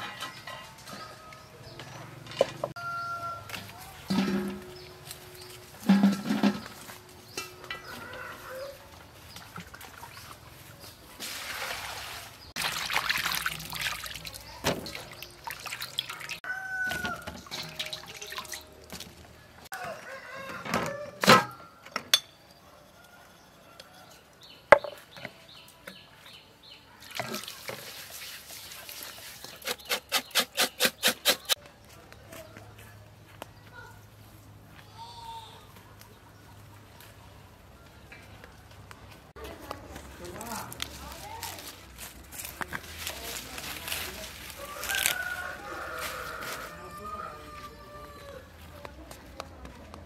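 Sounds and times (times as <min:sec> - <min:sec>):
water sloshing in steel bowl: 0:09.4 - 0:16.4, 0:17.4 - 0:19.2, 0:27.0 - 0:29.6.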